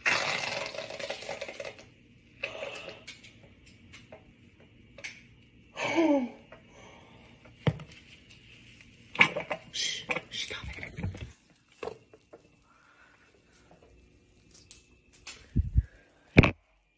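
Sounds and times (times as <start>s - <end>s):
woman groaning: 5.8s - 6.4s.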